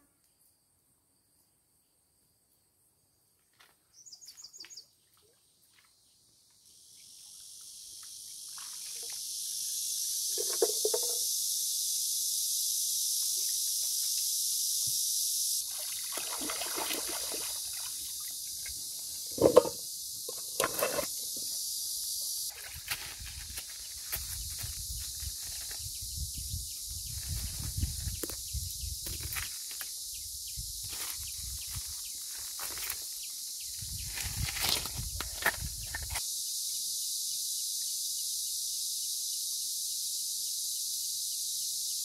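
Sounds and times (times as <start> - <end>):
steady high hiss: 9.2 - 15.7, 36.2 - 42.0.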